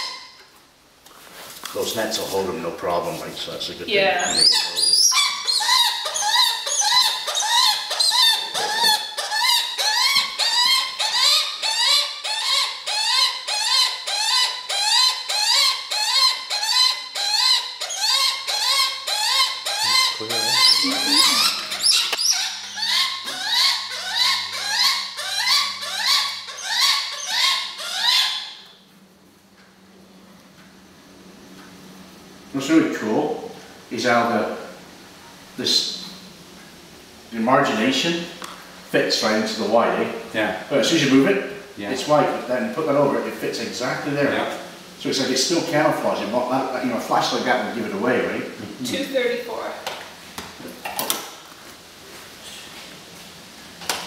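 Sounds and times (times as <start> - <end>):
hawk high upward-sliding cries: 4.1 - 28.6.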